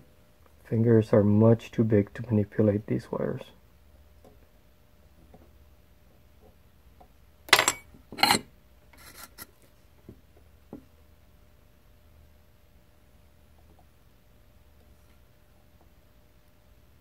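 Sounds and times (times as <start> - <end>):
tools scraping on bench: 7.6 - 9.6.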